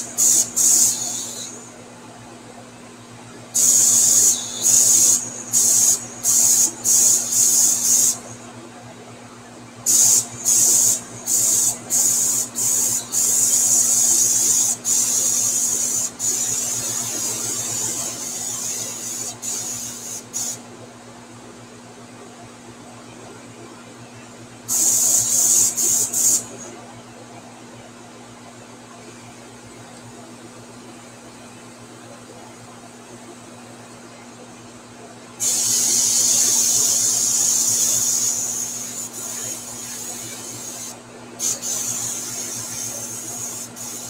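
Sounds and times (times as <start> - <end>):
airbrush spraying: 0.0 - 1.6, 3.6 - 8.3, 9.9 - 20.6, 24.7 - 26.5, 35.4 - 44.0.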